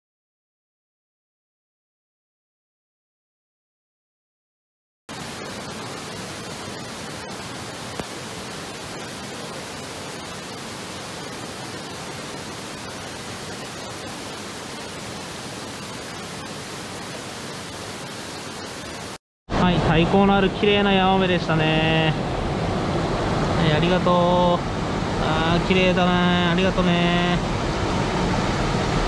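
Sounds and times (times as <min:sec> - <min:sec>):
waterfall and stream rushing: 0:05.1 - 0:19.2, 0:19.8 - 0:29.0.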